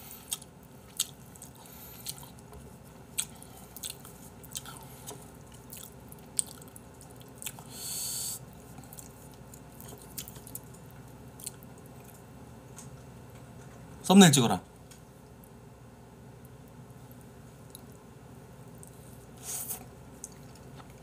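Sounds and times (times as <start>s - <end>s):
wet chewing: 0.3s - 7.8s, 8.5s - 12.2s.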